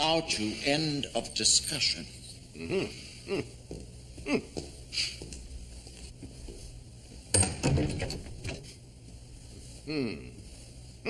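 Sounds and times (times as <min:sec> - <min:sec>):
low steady hum: 0:00.0 - 0:11.0
person making quiet sounds: 0:02.5 - 0:03.6, 0:04.2 - 0:05.3, 0:09.7 - 0:11.0.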